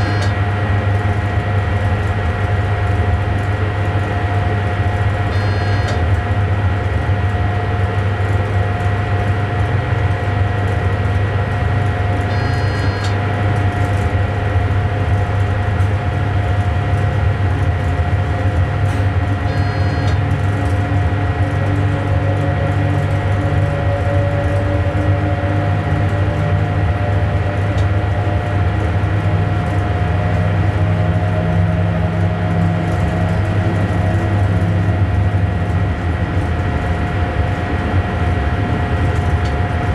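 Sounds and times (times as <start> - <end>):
electric train hum and whine: 0.0 - 39.9
rising whine: 11.4 - 15.4.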